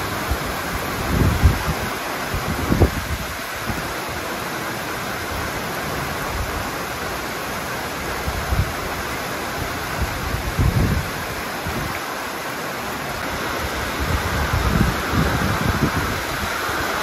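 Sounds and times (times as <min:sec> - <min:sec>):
wind buffeting microphone: 0:00.0 - 0:03.9, 0:08.2 - 0:12.0, 0:13.2 - 0:17.0
heavy rain hissing: 0:00.0 - 0:17.0.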